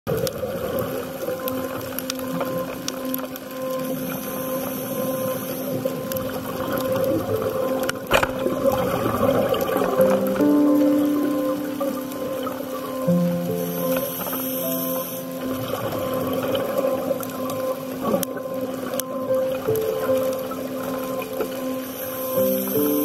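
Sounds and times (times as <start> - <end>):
faint clicks: 0.1 - 11.0
low underwater hum: 0.1 - 23.0
sharp crackle: 0.1 - 23.0.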